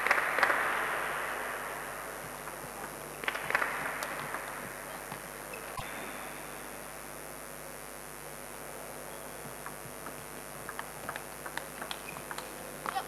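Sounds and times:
spectators clapping: 0.0 - 5.5, 9.4 - 13.0.

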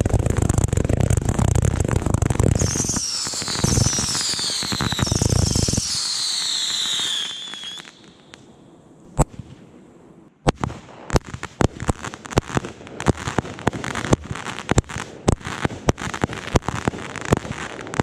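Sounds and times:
fireworks barrage with heavy thuds: 0.0 - 7.1
firework whistles falling in pitch: 2.6 - 8.3.

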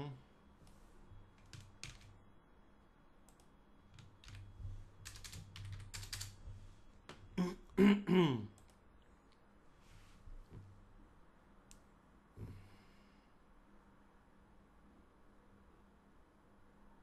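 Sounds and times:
computer keyboard typing: 1.4 - 2.2, 3.3 - 6.4
man's wordless vocal sounds: 7.4 - 8.5.

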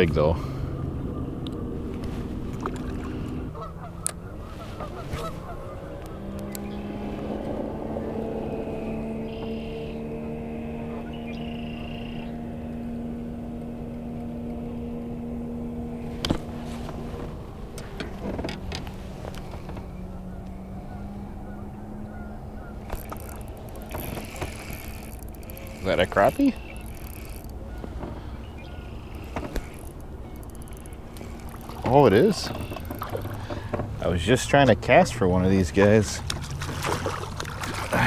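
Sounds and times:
low hum: 0.0 - 35.5
geese honking: 3.5 - 6.0
sharp clicks: 29.1 - 33.5.

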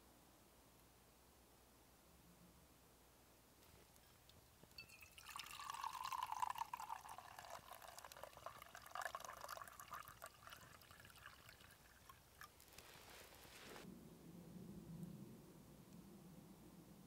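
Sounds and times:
tea pouring into a mug: 4.8 - 13.7.

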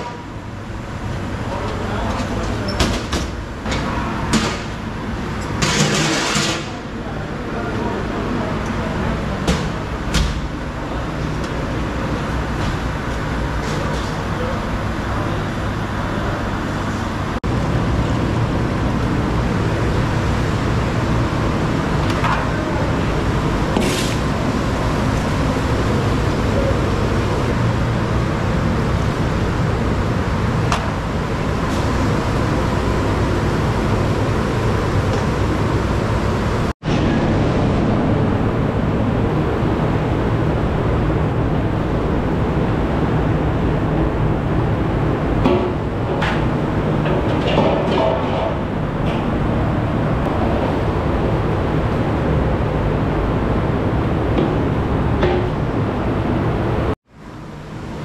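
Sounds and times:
kitchen equipment roaring: 0.0 - 58.0.

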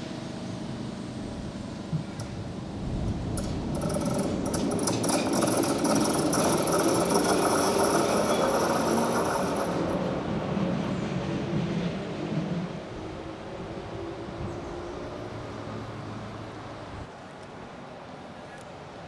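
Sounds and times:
tram motors and wheels rattling: 0.0 - 19.0.

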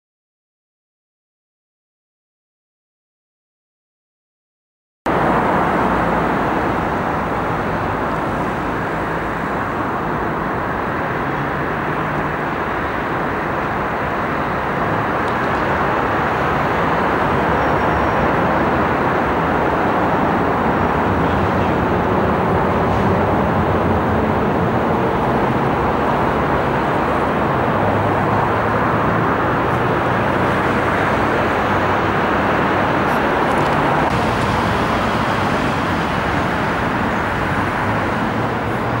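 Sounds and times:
car engines and tyres: 5.1 - 39.0
city traffic: 5.1 - 39.0.

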